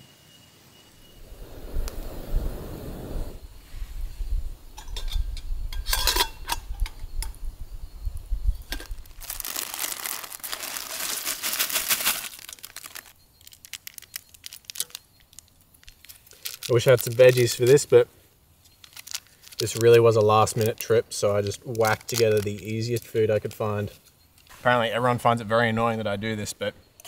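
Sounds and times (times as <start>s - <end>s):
plastic packet crinkling and tearing: 8.9s - 17.9s, 18.7s - 23.6s.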